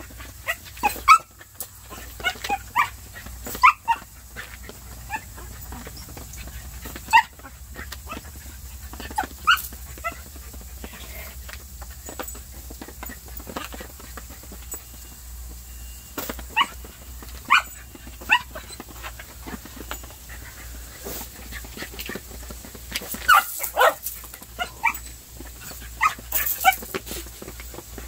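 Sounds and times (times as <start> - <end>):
small dog barking: 0.4 - 4.5, 5.1 - 5.9, 6.9 - 8.4, 9.0 - 11.2, 16.5 - 18.8, 23.2 - 26.9.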